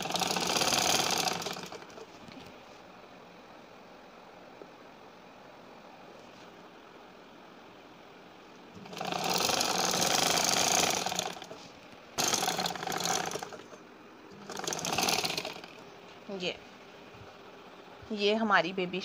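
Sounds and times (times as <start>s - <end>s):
sewing machine running: 0.0s - 2.4s, 8.8s - 11.6s, 12.2s - 15.8s.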